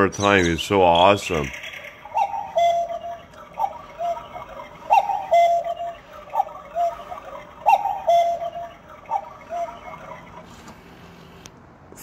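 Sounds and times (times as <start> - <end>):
cuckoo clock calling: 0.0 - 11.0.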